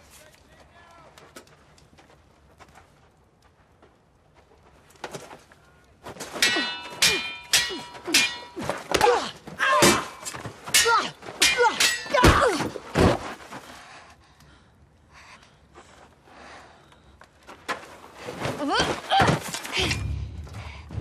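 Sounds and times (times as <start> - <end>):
steel swords clashing: 6.3 - 12.8.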